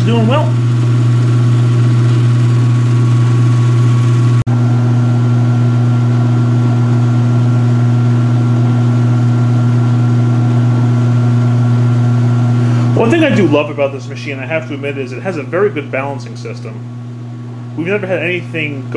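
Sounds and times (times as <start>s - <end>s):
washing machine motor humming: 0.0s - 18.9s.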